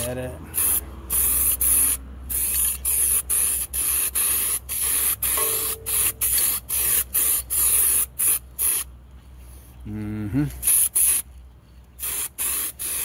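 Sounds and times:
aerosol can spraying bursts: 0.6 - 8.9, 12.0 - 13.0.

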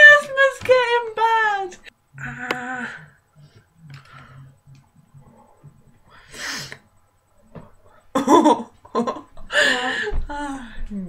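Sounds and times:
sharp noisy breath: 6.1 - 6.8.

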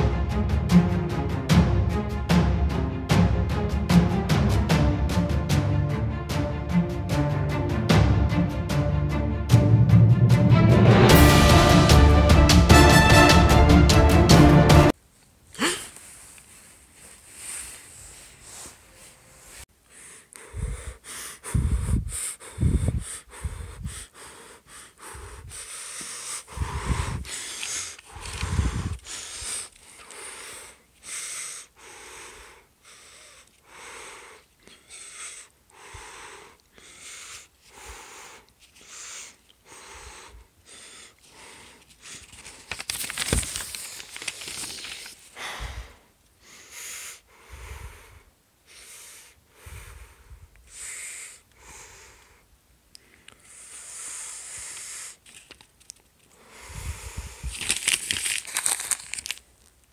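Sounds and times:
person breathing heavily: 15.5 - 42.8, 44.5 - 55.5, 56.3 - 59.4.

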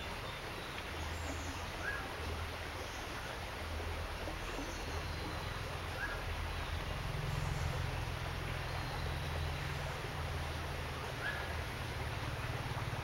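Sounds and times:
flowing water hiss: 0.0 - 13.0.

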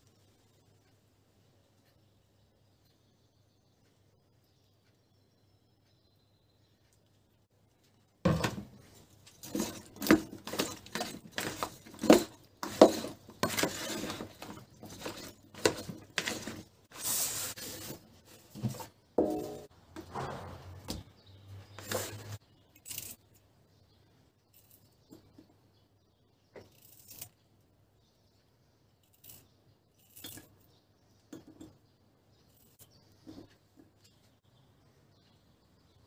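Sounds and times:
rustling and scraping: 8.3 - 21.0, 21.6 - 23.2.

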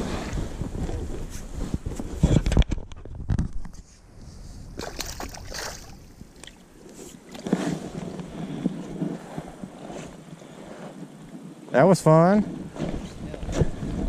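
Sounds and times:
creek water splashing: 4.8 - 7.5.

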